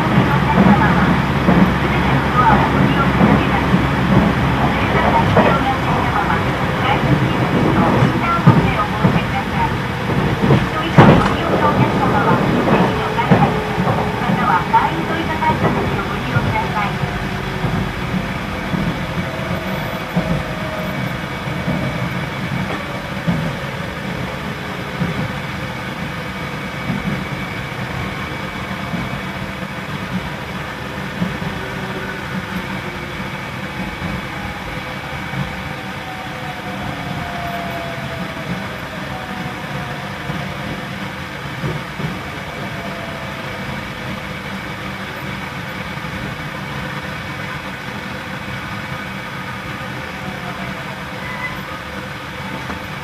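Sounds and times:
traction motor whine: 0.0s - 25.5s
train wheels rumbling on rail: 0.0s - 53.0s.

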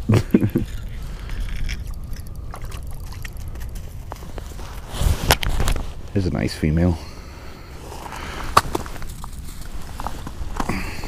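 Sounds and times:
wind rumbling on microphone: 0.0s - 6.5s.

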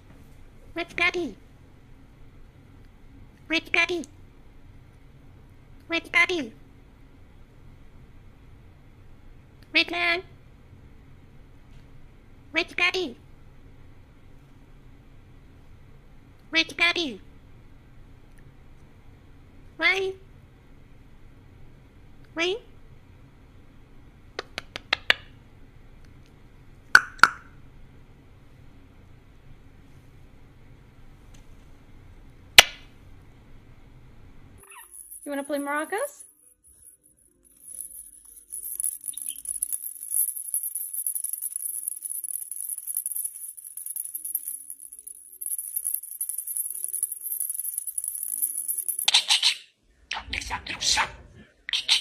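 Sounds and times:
parrot mouth pops: 27.0s - 27.5s
bird shaking toy maraca: 34.6s - 49.5s.

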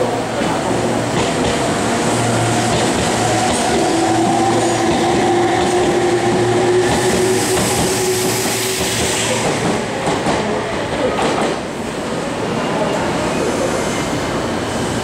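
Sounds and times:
train wheel rumble and clatter: 0.0s - 11.8s.

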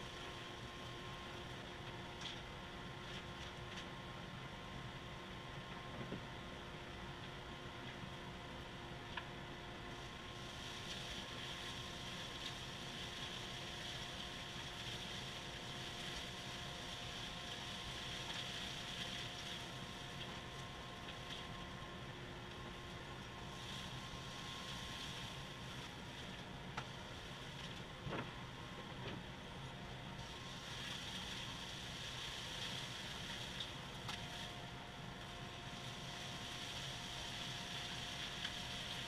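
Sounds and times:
dust collector motor hum: 8.7s - 39.0s.

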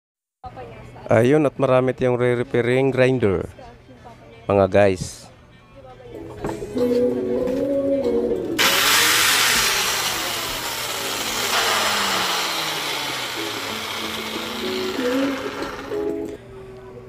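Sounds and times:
background music: 3.0s - 9.3s, 9.9s - 16.6s
angle grinder whirring: 8.6s - 16.4s.

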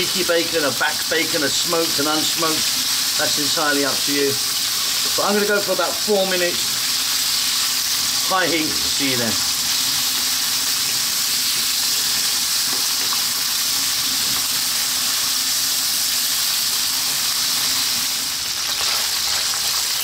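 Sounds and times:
bacon sizzling in oil: 0.0s - 20.0s.

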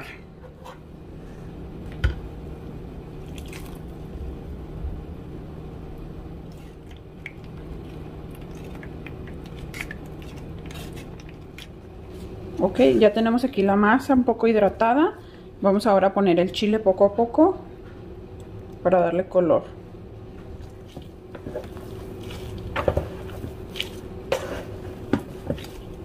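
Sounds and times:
steady low hum: 0.0s - 26.0s
spoon working wet puree in sieve: 20.6s - 26.0s.

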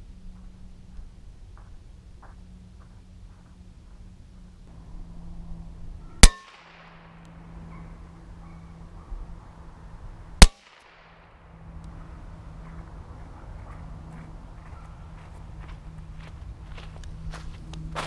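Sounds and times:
bullet ringing on metal: 6.2s - 7.2s, 10.4s - 10.9s
rifle shots: 6.2s - 7.3s, 10.4s - 11.4s.

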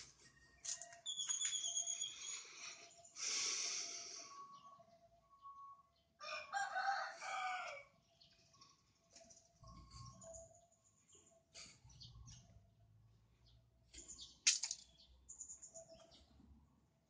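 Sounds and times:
rooster crowing: 6.2s - 7.9s.

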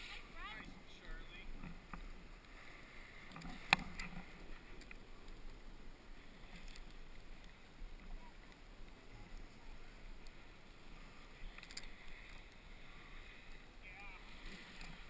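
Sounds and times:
snowboard sliding over snow: 0.0s - 0.6s.

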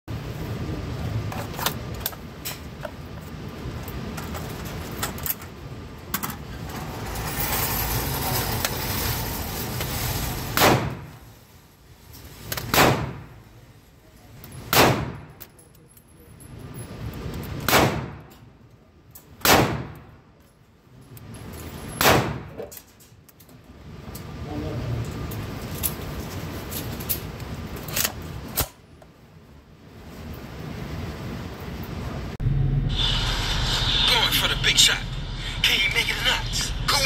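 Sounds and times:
handling noise with clicks: 1.3s - 6.7s, 15.3s - 19.4s, 20.0s - 21.9s, 22.6s - 24.4s, 25.0s - 29.2s
gunshots echoing indoors: 10.6s - 11.2s, 12.7s - 13.4s, 14.7s - 15.4s, 17.6s - 18.3s, 19.4s - 20.1s, 22.0s - 22.6s.

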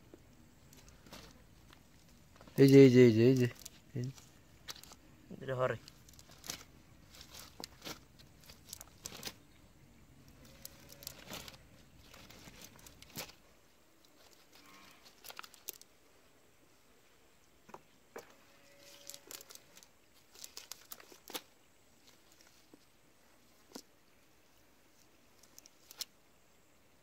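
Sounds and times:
wet net rustling and crackling: 0.4s - 9.6s, 10.2s - 15.9s, 18.6s - 26.2s.

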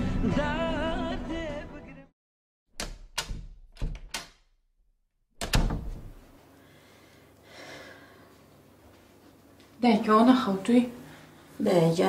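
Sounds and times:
door clicks: 2.7s - 4.5s, 5.4s - 6.2s
door thud: 2.8s - 4.4s, 5.4s - 6.2s.

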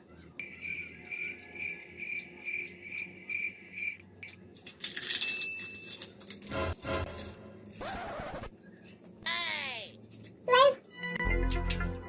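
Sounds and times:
cricket chirping: 0.4s - 4.0s.

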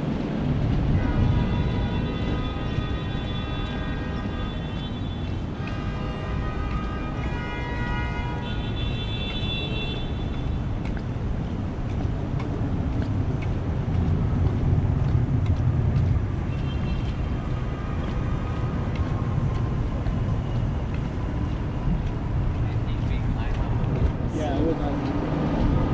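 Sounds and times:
street traffic rumbling: 0.0s - 25.9s.

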